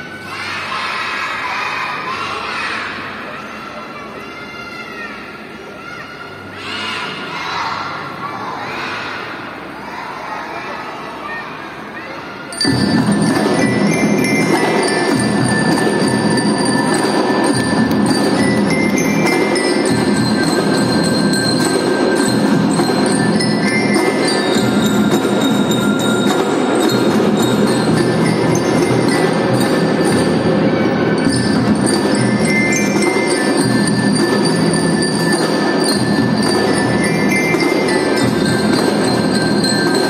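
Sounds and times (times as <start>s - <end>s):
children's drum band playing: 12.4s - 40.0s
ringing metal bell tones: 12.5s - 40.0s.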